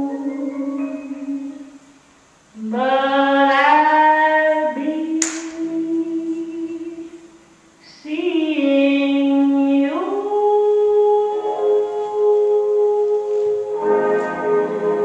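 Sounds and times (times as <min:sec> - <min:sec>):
woman singing jazz ballad: 0:00.0 - 0:01.9, 0:02.5 - 0:15.0
sharp click: 0:05.2 - 0:05.6.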